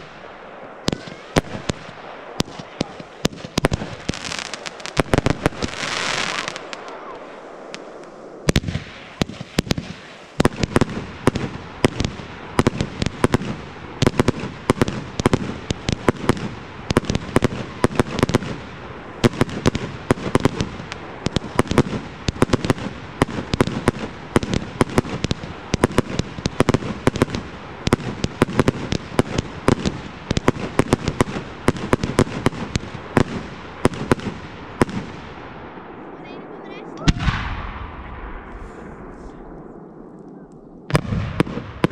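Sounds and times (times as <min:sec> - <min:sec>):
fireworks bangs: 0:00.0 - 0:41.9
firework hiss: 0:00.9 - 0:33.5.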